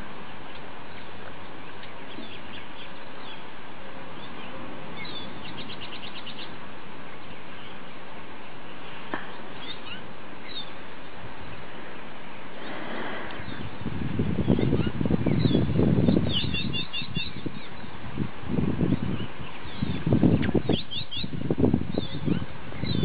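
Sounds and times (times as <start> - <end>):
background hiss: 0.0 - 23.0
small birds chirping: 0.2 - 18.0, 18.8 - 23.0
rapid bird trill: 4.2 - 6.6.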